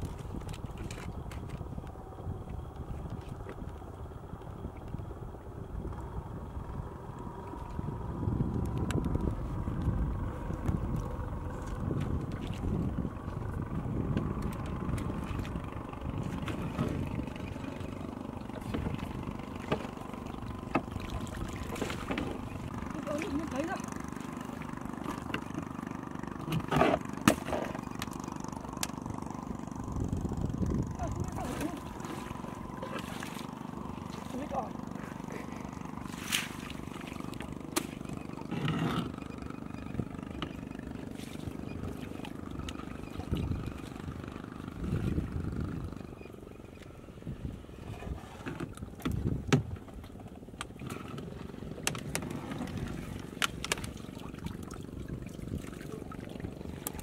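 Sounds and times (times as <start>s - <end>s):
steady low rumble: 0.0s - 48.0s
small engine idling: 0.0s - 57.0s
water sloshing: 8.6s - 57.0s
water splash: 36.1s - 38.1s.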